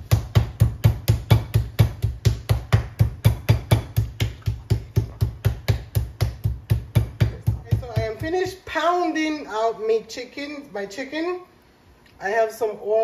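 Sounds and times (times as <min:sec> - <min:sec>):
meat mallet pounding chicken: 0:00.0 - 0:08.5.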